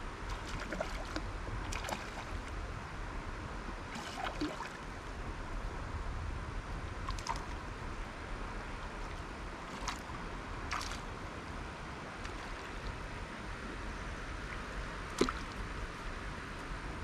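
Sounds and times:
river water rushing: 0.0s - 2.6s, 3.8s - 5.1s, 7.1s - 16.6s.

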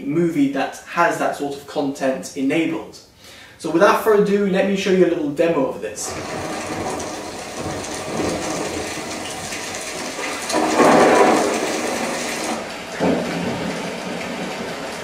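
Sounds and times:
rain and water rushing hiss: 6.0s - 15.0s.

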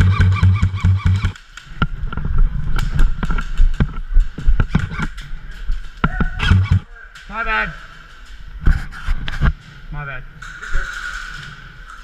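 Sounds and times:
airsoft gunfire: 0.0s - 1.4s, 6.4s - 6.8s.

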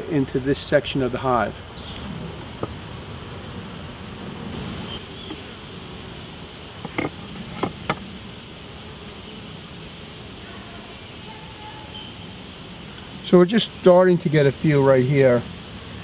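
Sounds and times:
honeybees buzzing: 0.0s - 16.0s
wooden knocks: 6.8s - 8.0s.

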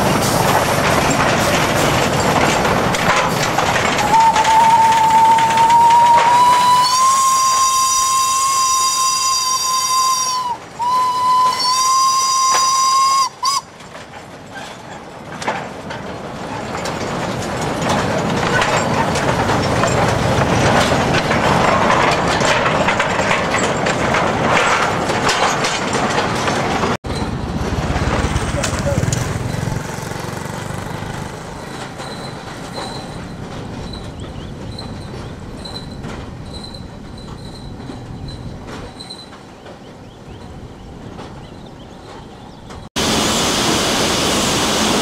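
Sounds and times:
train rumbling and clattering past: 0.0s - 45.0s
steam locomotive whistle: 4.0s - 13.7s.

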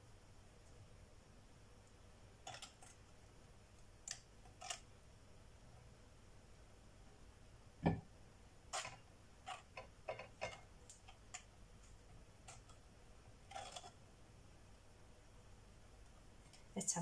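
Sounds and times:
knife scraping and tapping wafer: 2.4s - 3.0s, 4.0s - 4.9s, 8.7s - 11.5s, 12.4s - 12.8s, 13.4s - 14.0s.

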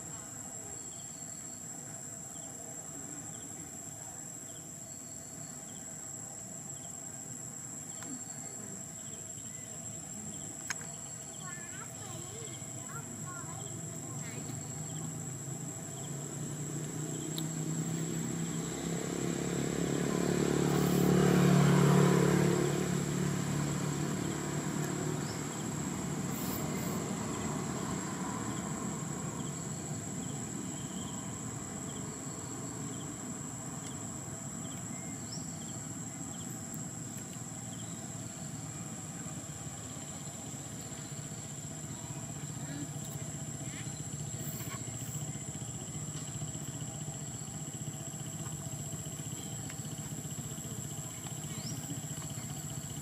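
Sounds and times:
vehicle engine passing by: 11.8s - 53.0s.

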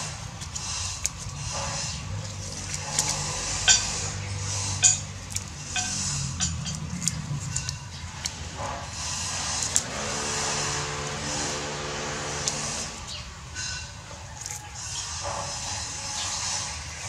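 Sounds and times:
vehicle engine passing: 0.0s - 17.0s
vine leaves rustling: 0.0s - 17.0s
leaves snapping off stems: 0.3s - 3.8s, 4.8s - 8.5s, 9.4s - 9.9s, 12.3s - 13.2s, 14.3s - 14.8s.

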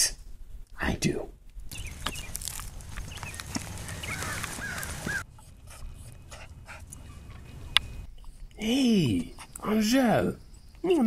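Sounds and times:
rustling: 1.6s - 5.2s.

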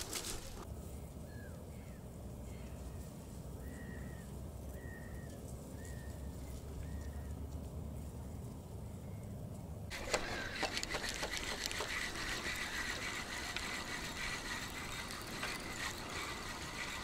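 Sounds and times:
bird calling: 9.9s - 17.0s.

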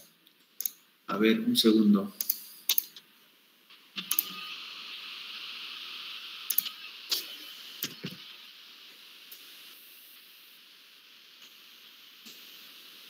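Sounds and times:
steady hiss: 0.0s - 13.0s
keyboard and mouse clicks: 2.2s - 3.0s, 4.0s - 4.3s, 6.5s - 6.7s.

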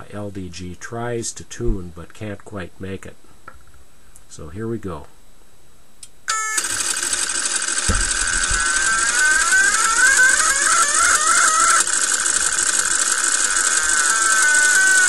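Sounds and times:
dense rapid clatter: 6.8s - 15.0s
warbling tones shifting pitch: 7.7s - 15.0s
short low thump: 7.9s - 8.1s.

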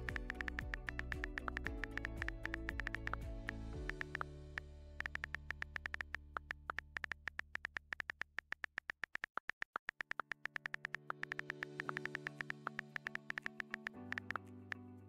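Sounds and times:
synthesizer pad: 0.0s - 7.5s, 10.2s - 15.0s
keyboard key clicks: 0.1s - 4.2s, 5.0s - 14.4s.

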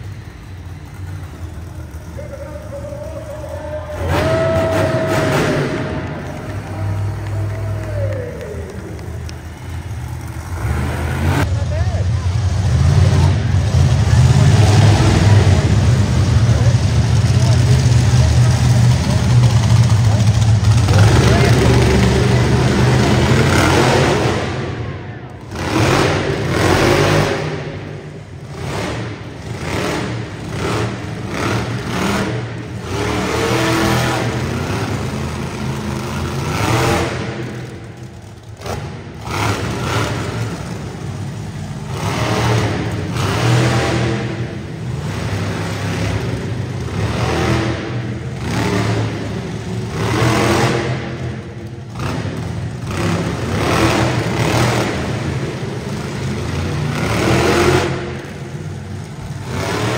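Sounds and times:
truck engine revving: 0.0s - 59.9s.

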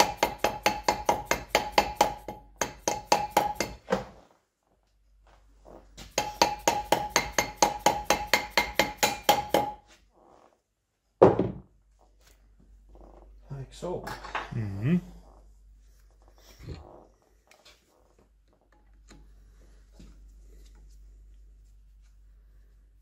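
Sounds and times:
hammer tapping on steel: 0.0s - 3.9s, 6.0s - 9.8s.

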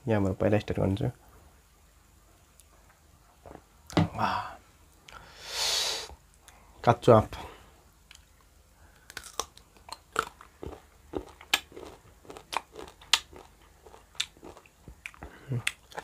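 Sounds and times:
crunchy chewing of raw mango: 8.9s - 16.0s.

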